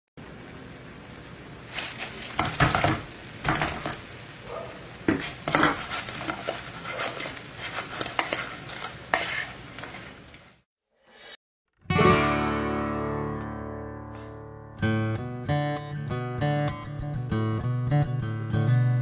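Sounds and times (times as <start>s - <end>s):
food sizzling in a pan: 0.2s - 11.2s
spatula knocking and scraping pan: 2.3s - 4.0s, 5.0s - 10.1s.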